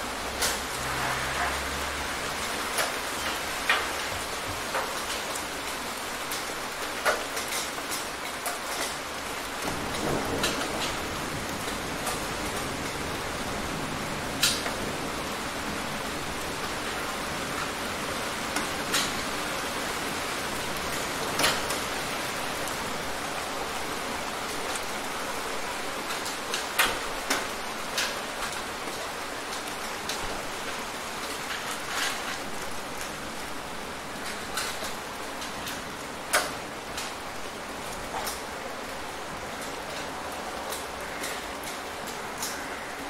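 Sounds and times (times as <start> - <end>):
steady rain hiss: 0.0 - 43.0.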